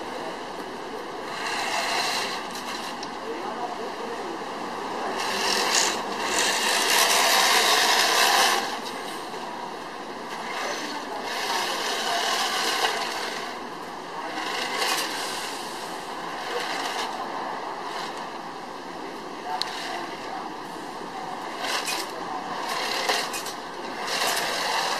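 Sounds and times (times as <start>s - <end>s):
toy tank motor whirring: 1.3s - 3.0s, 5.2s - 8.9s, 10.4s - 13.6s, 14.2s - 15.7s, 16.3s - 17.2s, 17.9s - 18.3s, 19.6s - 20.2s, 21.5s - 24.9s.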